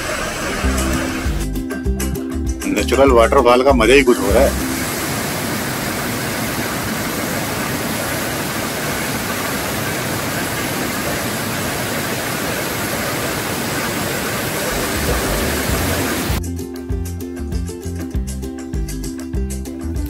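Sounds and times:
waterfall cascading over rocks: 0.0s - 1.4s, 4.2s - 16.4s.

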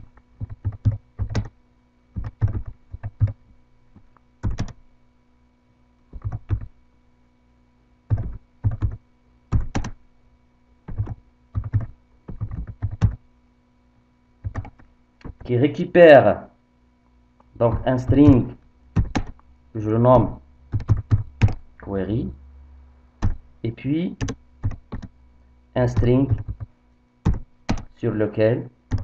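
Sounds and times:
computer keyboard typing: 0.0s - 1.6s, 2.2s - 3.4s, 4.4s - 4.8s, 6.1s - 6.7s, 8.1s - 10.0s, 10.9s - 13.2s, 14.4s - 15.5s, 17.6s - 19.4s, 20.7s - 21.7s, 23.2s - 23.4s, 24.2s - 25.2s, 25.8s - 28.0s
faint electrical hum: 0.0s - 29.0s.

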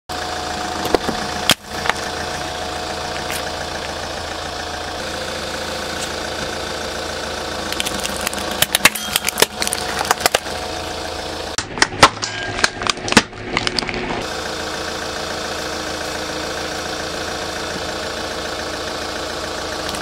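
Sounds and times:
car engine idling: 0.1s - 20.0s
objects cracking under tyre: 7.7s - 10.6s, 11.6s - 14.2s.

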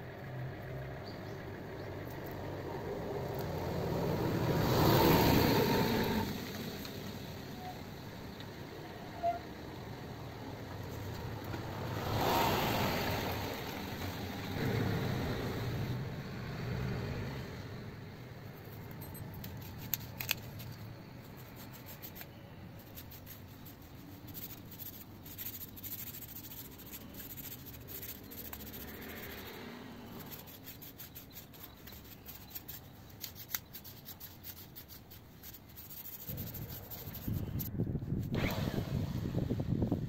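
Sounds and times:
wood rubbing and scraping: 18.7s - 38.3s.

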